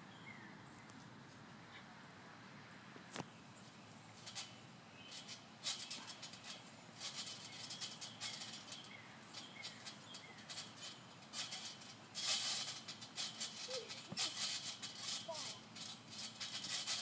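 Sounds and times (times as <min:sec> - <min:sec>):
trampoline springs rattling: 0:03.6 - 0:17.0.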